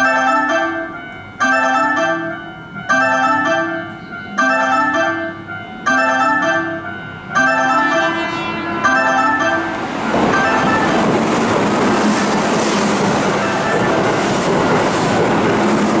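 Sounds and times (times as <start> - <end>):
two-note electronic warning chime: 0.0 - 11.0.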